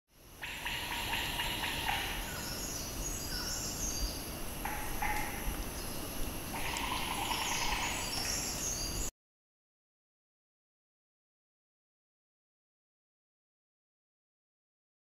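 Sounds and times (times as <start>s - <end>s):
low background hiss: 0.1s - 9.1s
birds chirping: 0.4s - 9.1s
buzzing insect-like chorus: 4.2s - 9.0s.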